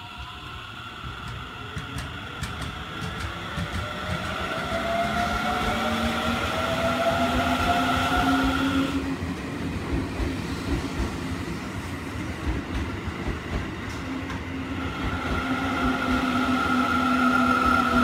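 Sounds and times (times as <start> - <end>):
train wheels rumbling over rails: 0.9 - 18.0.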